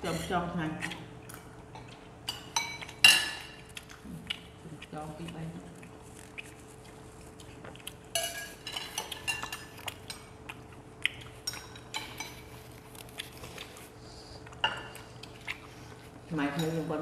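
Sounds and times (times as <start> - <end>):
faint steady hum: 0.0 - 17.0
spoons clinking on ceramic bowls: 8.1 - 9.7.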